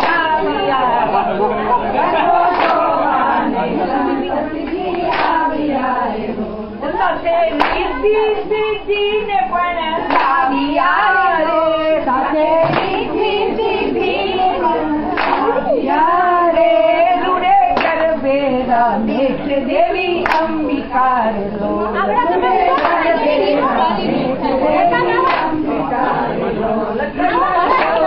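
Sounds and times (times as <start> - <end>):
group hand claps: 0.0 - 0.5, 2.4 - 3.1, 4.6 - 5.7, 7.5 - 7.9, 10.0 - 11.0, 12.5 - 13.4, 15.1 - 16.0, 17.7 - 18.2, 20.2 - 20.7, 22.6 - 23.6, 25.1 - 25.8, 27.7 - 28.0
women singing together: 0.0 - 28.0.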